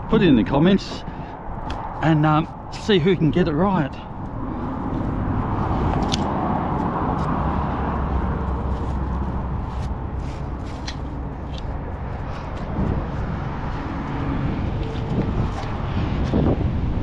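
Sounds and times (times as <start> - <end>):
road traffic passing: 0.0 - 17.0
rope rustling against rail: 4.1 - 17.0.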